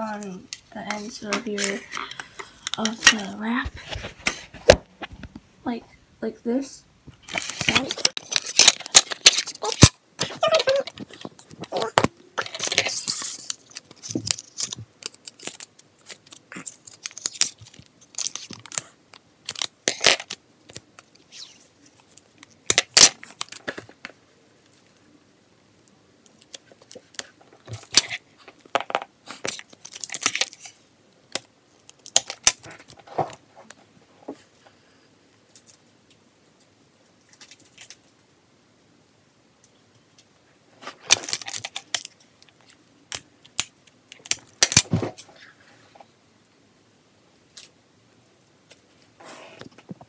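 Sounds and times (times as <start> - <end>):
plastic wrap crinkling: 0.0 - 4.5, 7.2 - 25.0, 26.2 - 30.8, 40.8 - 44.9
tape being torn: 7.2 - 11.0, 11.6 - 21.6, 22.4 - 23.8.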